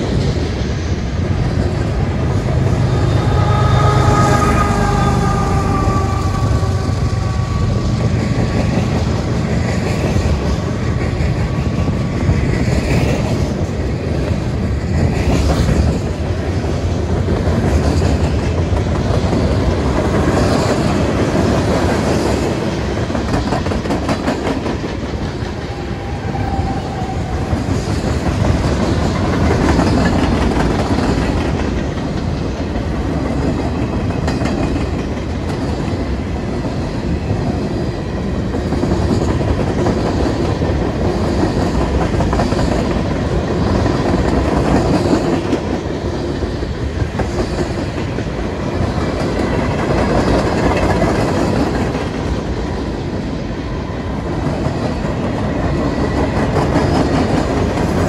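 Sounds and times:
freight train wheels clicking: 0:00.0 - 0:58.0.

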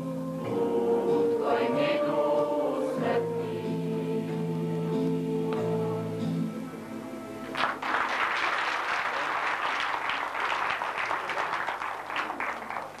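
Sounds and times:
choir singing: 0:00.0 - 0:07.5
audience applauding: 0:07.4 - 0:13.0.

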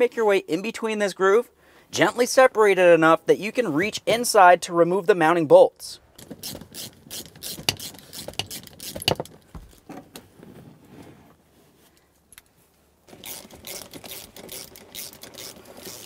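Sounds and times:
socket ratchet clicking: 0:06.2 - 0:09.4, 0:13.2 - 0:16.0.

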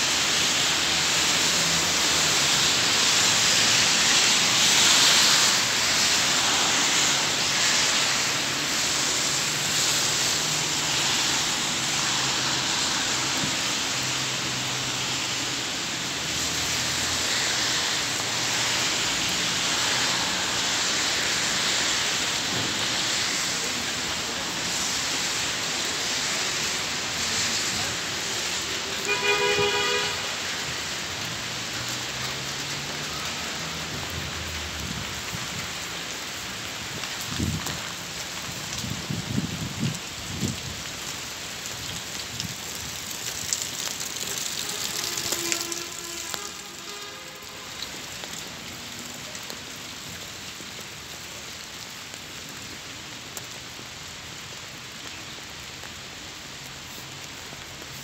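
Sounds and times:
cars passing: 0:00.0 - 0:58.0
steady rain on wet street: 0:00.0 - 0:58.0
car horn toot: 0:29.0 - 0:30.3, 0:44.6 - 0:47.8.

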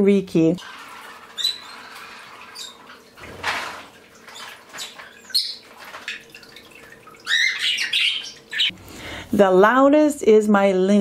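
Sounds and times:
birds chirping and calling: 0:01.0 - 0:08.8.

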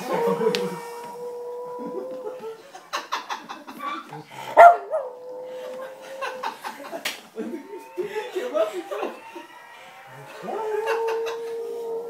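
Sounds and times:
dog howling: 0:00.0 - 0:02.6, 0:04.3 - 0:12.0
ambulance siren from computer: 0:07.4 - 0:12.0.

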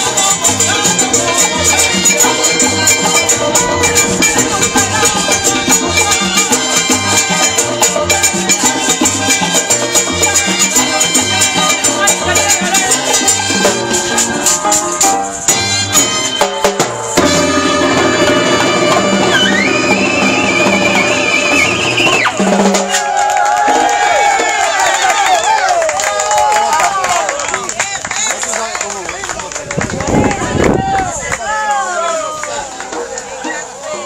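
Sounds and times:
hand drums: 0:00.0 - 0:24.4
live salsa band playing: 0:00.0 - 0:28.6, 0:29.3 - 0:34.0.

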